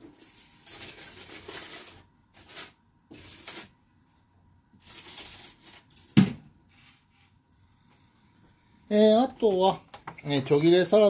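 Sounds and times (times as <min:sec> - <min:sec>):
aluminium foil crumpling: 0:00.0 - 0:03.8, 0:04.8 - 0:06.2.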